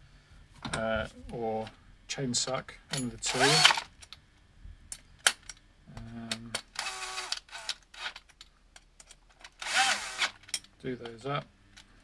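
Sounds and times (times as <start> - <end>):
cordless drill whirring: 3.3 - 3.8, 6.8 - 8.1, 9.6 - 10.4
sharp clicks of drill bit: 3.3 - 3.8, 6.7 - 8.1, 9.6 - 10.4.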